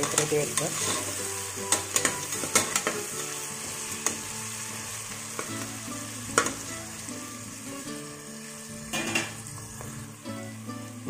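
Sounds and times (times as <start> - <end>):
metal spatula scraping a pot: 0.0 - 3.0
onions sizzling in hot oil: 0.0 - 11.0.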